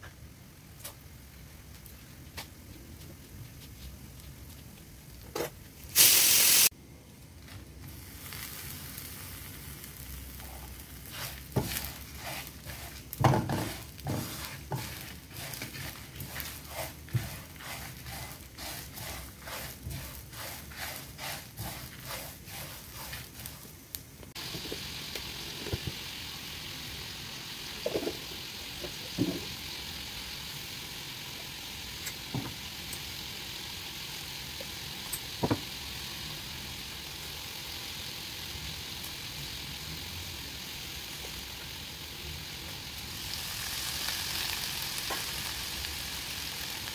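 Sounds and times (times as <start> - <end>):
oil hissing: 5.9 - 6.7, 7.9 - 46.9
spatula scraping pan: 10.4 - 23.7.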